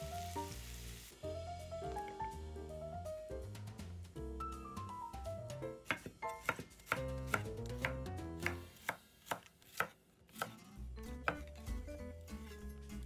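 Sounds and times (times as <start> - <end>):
knife chopping on wooden board: 5.8 - 10.6, 11.2 - 11.5.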